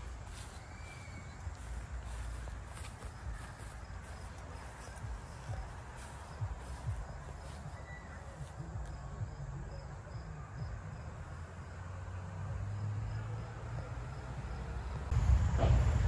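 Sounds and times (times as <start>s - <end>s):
insects chirping: 0.0s - 16.0s
low rumble: 15.0s - 16.0s.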